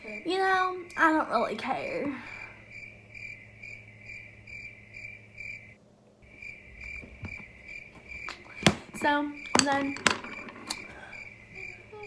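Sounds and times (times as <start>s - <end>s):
high-pitched pulsing chirping: 2.2s - 10.0s, 10.8s - 12.0s.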